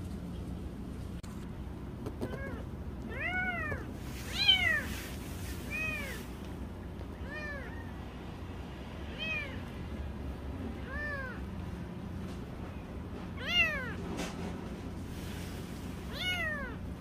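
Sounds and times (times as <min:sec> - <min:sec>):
kittens mewing: 0:07.1 - 0:07.8, 0:10.7 - 0:11.5, 0:16.1 - 0:16.8.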